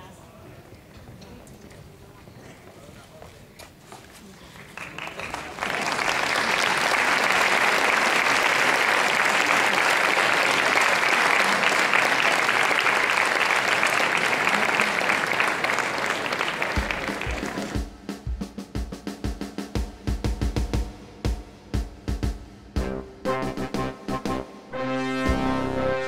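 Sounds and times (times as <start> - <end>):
audience applauding: 4.5 - 17.8
music with drum beat: 16.7 - 24.6.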